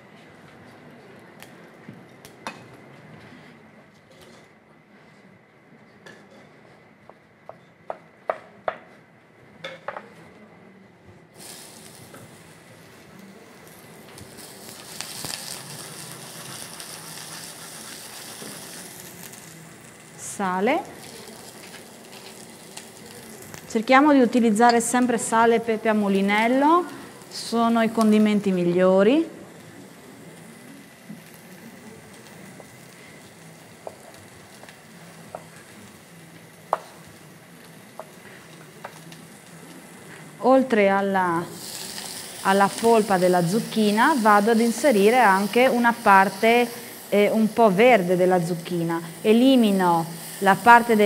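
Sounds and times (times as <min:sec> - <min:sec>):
vegetables sizzling in hot oil: 0:11.4 - 0:51.0.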